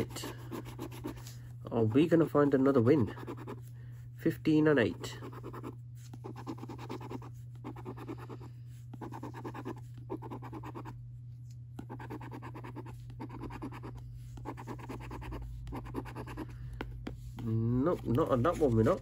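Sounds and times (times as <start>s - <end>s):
coin scratching scratchcard: 5.2s - 8.3s, 9.0s - 11.0s, 11.8s - 16.4s.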